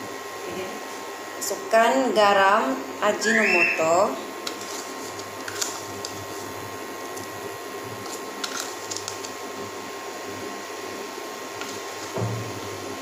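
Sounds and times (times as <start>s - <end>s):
faint steady whine: 0.0s - 13.0s
soup simmering hiss: 2.8s - 13.0s
seasoning clicks: 8.0s - 9.4s.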